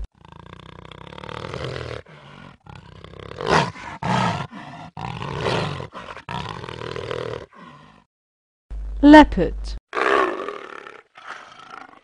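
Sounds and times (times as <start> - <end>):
jaguar roaring: 0.1 - 8.0.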